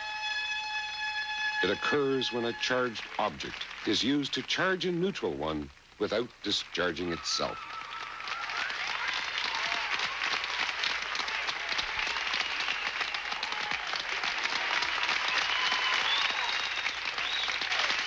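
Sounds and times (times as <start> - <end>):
audience applauding: 1.3 - 5.2, 6.1 - 18.0.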